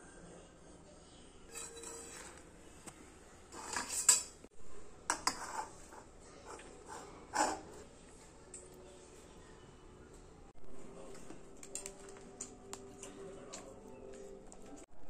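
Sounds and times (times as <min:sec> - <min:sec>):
metal utensil clinking on metal: 0:01.5 - 0:02.4, 0:03.5 - 0:04.4.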